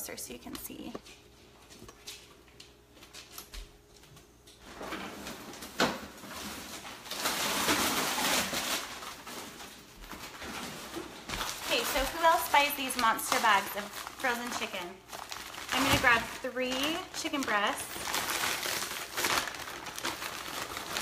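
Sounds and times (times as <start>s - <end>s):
plastic bag rustling: 4.6s - 21.0s.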